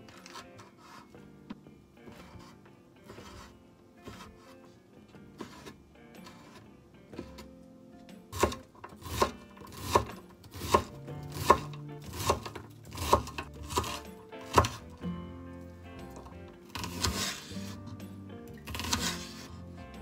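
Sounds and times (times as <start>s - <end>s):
faint background music: 0.0s - 20.0s
knife chopping on cutting board: 2.1s - 4.6s, 5.4s - 6.6s, 8.3s - 15.0s, 16.0s - 18.0s, 18.6s - 19.5s.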